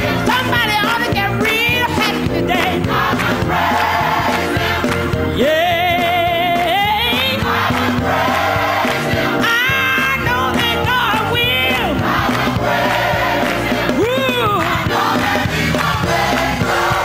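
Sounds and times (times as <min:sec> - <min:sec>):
gospel choir and band: 0:00.0 - 0:17.0
lead voice singing with vibrato: 0:00.0 - 0:17.0
hand clapping: 0:14.5 - 0:16.7.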